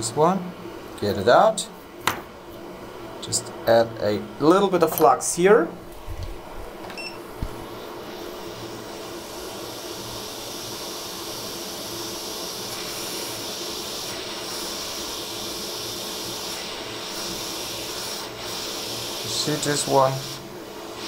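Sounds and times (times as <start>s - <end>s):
hot air blower hissing: 7.2s - 21.0s.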